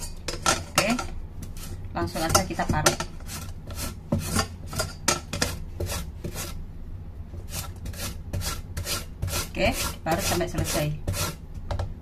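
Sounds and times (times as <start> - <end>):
radish grating on metal grater: 3.1 - 6.6, 7.5 - 11.4.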